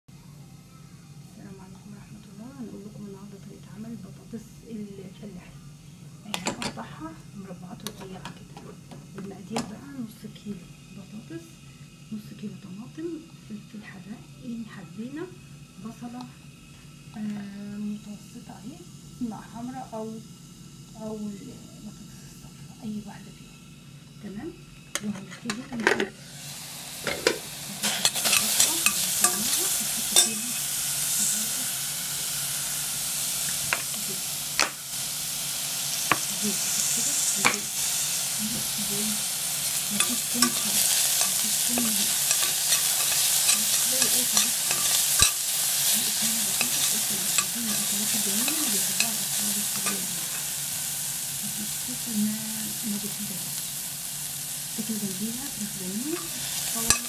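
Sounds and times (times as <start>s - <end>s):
onion sizzling in oil: 0.6s - 57.0s
spoon scraping metal pot: 27.0s - 30.7s, 40.0s - 50.5s, 56.2s - 57.0s.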